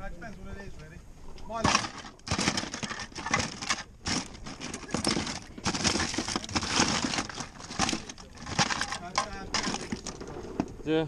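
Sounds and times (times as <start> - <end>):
plastic toys clattering in tub: 1.6 - 10.3.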